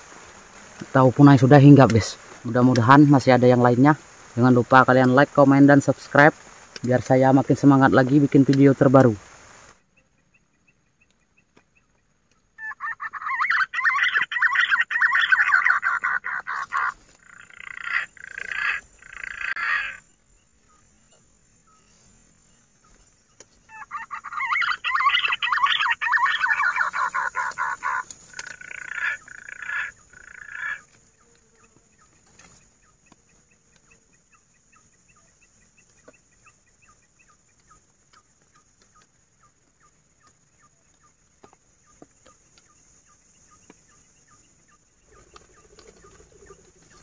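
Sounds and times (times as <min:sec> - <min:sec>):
pigeons chattering calls: 0:08.8 - 0:22.0, 0:22.8 - 0:47.0.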